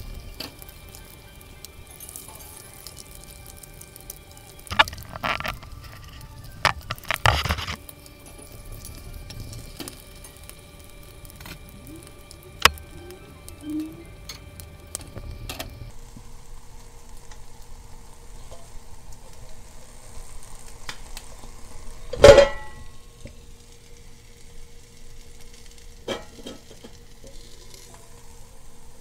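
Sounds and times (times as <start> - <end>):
alcohol stove burning: 0.0 - 29.0
egg sizzling in a pan: 0.0 - 29.0
loud ringing metallic clank: 22.2 - 22.9.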